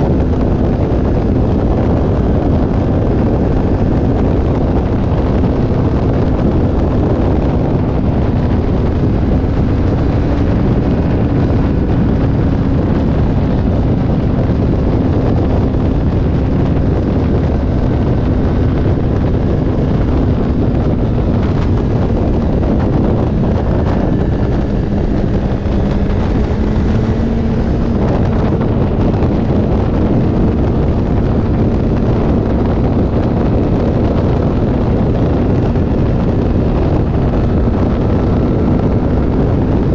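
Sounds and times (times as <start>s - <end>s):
motorcycle engine drone: 0.0s - 39.9s
wind buffeting microphone: 0.0s - 39.9s.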